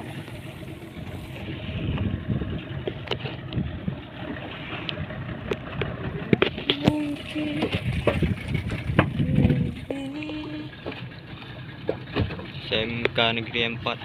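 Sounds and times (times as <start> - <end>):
wind buffeting microphone: 0.0 - 4.2, 4.9 - 10.0
boat engine rumble: 0.0 - 14.0.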